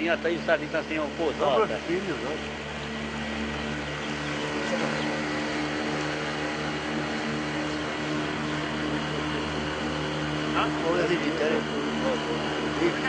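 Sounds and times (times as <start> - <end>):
boat motor running: 0.0 - 13.0.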